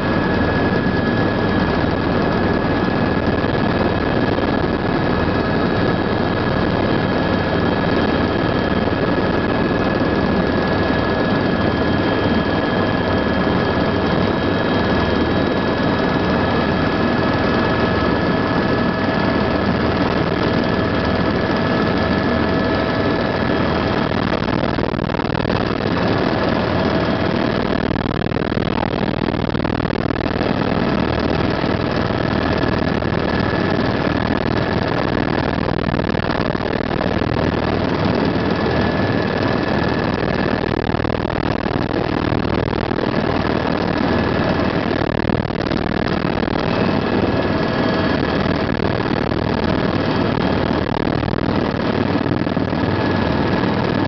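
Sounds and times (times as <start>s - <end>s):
helicopter engine and rotor drone: 0.0s - 54.0s
high whine: 0.0s - 54.0s.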